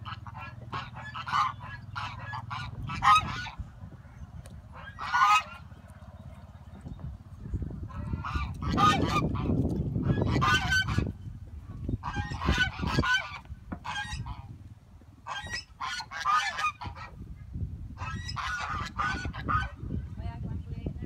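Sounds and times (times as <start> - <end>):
geese honking: 0.0 - 6.4, 7.8 - 11.2, 11.9 - 14.5, 15.2 - 17.2, 18.0 - 19.9.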